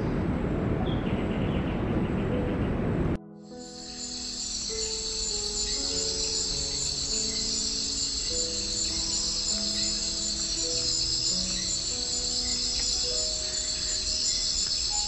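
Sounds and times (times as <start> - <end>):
soft slow music: 0.6 - 15.0
insects trilling: 3.5 - 15.0.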